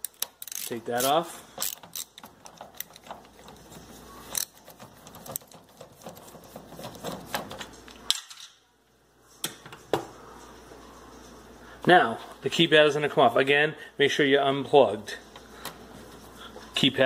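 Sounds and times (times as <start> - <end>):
screwdriver clicking on metal: 0.0 - 3.6, 4.3 - 6.4.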